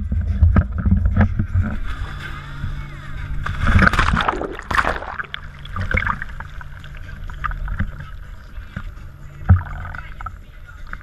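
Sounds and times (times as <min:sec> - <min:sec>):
boat engine idling: 0:00.0 - 0:03.9, 0:05.0 - 0:11.0
water sloshing and lapping: 0:00.0 - 0:11.0
water splashing over camera: 0:03.4 - 0:11.0.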